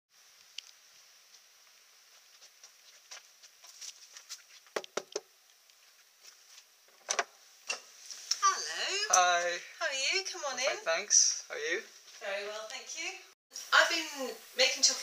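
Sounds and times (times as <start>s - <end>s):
faint hiss: 0.1s - 15.0s
light scuffing: 1.2s - 4.9s, 5.8s - 6.8s.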